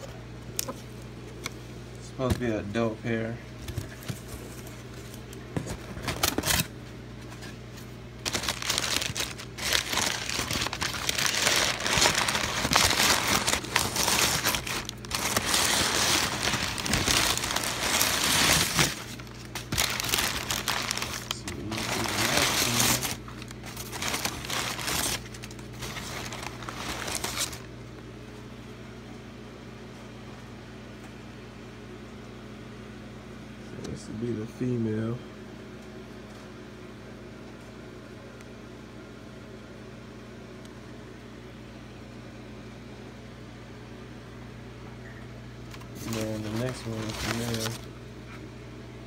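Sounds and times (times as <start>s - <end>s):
steady low hum: 0.0s - 49.0s
packing paper rustling: 3.6s - 27.7s, 45.7s - 48.0s.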